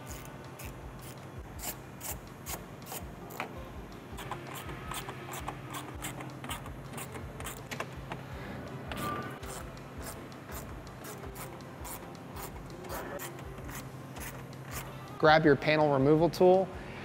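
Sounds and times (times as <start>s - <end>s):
hand ratchet clicking: 4.2s - 8.2s.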